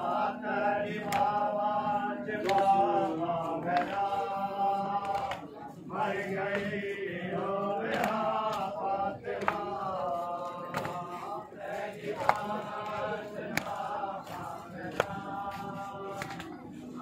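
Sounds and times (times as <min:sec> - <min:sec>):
men chanting a lament: 0:00.0 - 0:17.0
hands slapping chests: 0:01.0 - 0:01.4, 0:02.4 - 0:02.8, 0:05.0 - 0:05.5, 0:07.9 - 0:08.7, 0:09.3 - 0:09.8, 0:10.6 - 0:11.2, 0:12.0 - 0:16.6.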